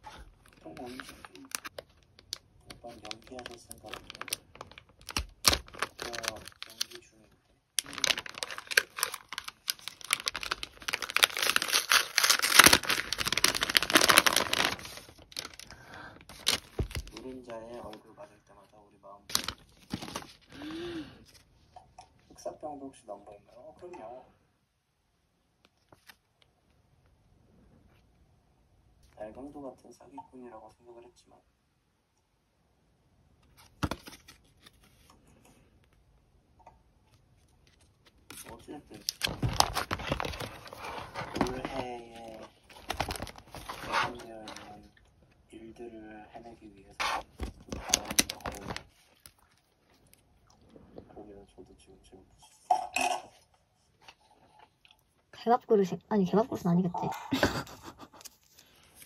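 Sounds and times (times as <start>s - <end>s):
paper envelope rustling: 0.2s - 7.0s, 7.8s - 18.0s, 19.3s - 20.6s, 25.8s - 26.3s, 33.5s - 35.1s, 37.4s - 44.8s, 47.0s - 49.6s
plastic pouch crinkling: 0.2s - 7.2s, 7.8s - 18.0s, 19.3s - 21.4s, 37.2s - 44.9s, 46.9s - 50.2s.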